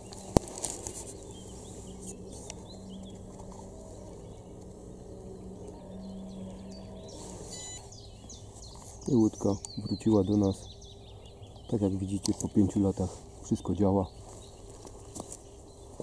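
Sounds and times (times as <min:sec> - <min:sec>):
electric motors humming: 0:00.0 - 0:08.4
small birds chirping: 0:00.0 - 0:16.0.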